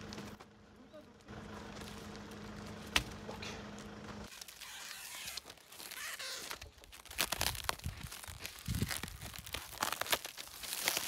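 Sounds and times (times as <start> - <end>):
plastic wrap crinkling and tearing: 4.3 - 11.0.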